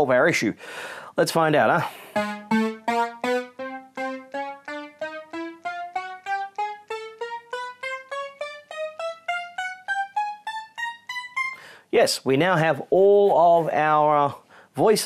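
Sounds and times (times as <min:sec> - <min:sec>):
synthesizer playing single notes: 0:02.0 - 0:11.7.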